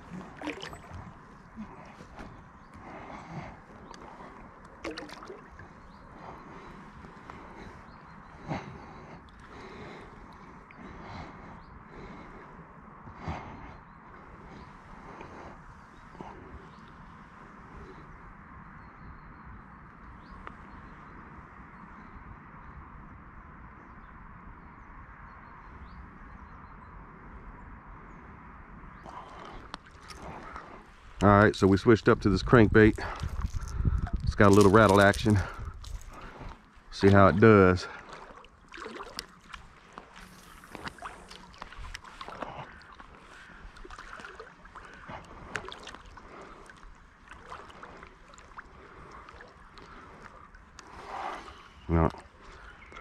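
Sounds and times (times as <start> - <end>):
small water splashes: 0.0 - 7.8, 29.0 - 53.0
water lapping and trickling: 0.0 - 22.1, 28.9 - 53.0
faint birds chirping: 0.0 - 53.0.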